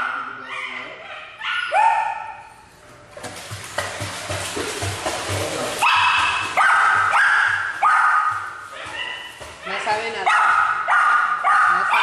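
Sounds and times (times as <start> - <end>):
dog paddling and splashing water: 2.6 - 12.0.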